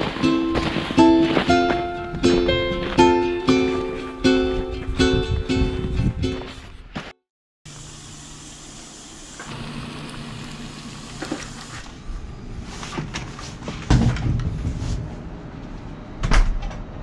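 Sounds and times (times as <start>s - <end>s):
microwave oven humming: 7.7s - 12.6s.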